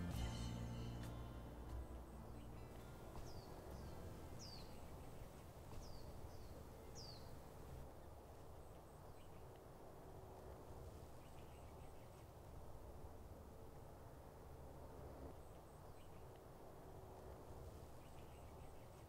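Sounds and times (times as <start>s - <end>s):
small bird chirping: 2.2s - 7.7s.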